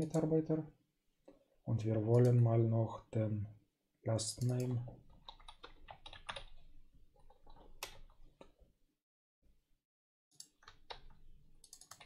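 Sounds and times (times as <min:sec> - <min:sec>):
faint keyboard typing: 0:01.2 - 0:02.5, 0:04.2 - 0:08.7, 0:10.3 - 0:12.0.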